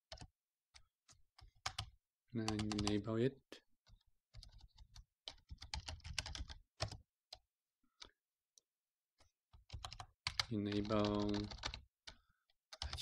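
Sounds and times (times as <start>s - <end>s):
typing on computer keyboard: 0.1s - 0.3s, 1.1s - 1.9s, 2.5s - 3.0s, 3.8s - 7.0s, 9.5s - 13.0s.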